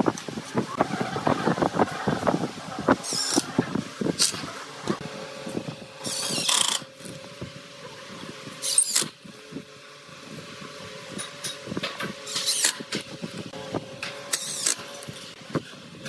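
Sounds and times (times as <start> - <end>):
impact driver driving screws: 6.0 - 6.9, 8.6 - 9.2, 14.3 - 14.8.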